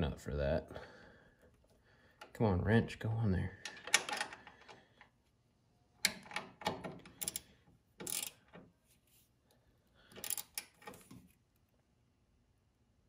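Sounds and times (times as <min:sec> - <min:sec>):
ratchet wrench clicking: 0:07.1 - 0:08.4, 0:10.2 - 0:10.9.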